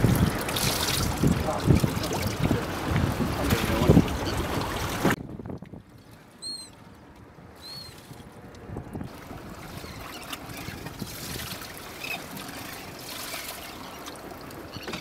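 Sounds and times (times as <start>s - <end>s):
water trickling and splashing: 0.0s - 15.0s.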